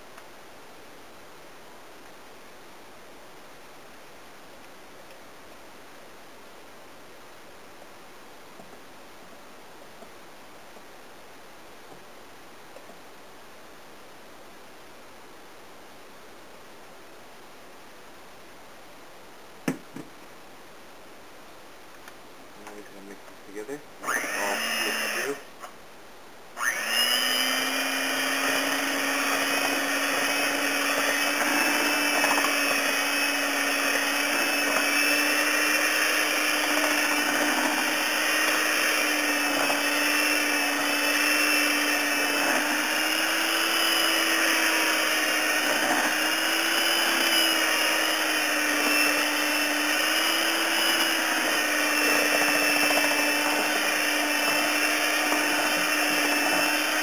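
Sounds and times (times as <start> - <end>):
electric hand mixer whirring: 24.0 - 25.5, 26.6 - 57.0.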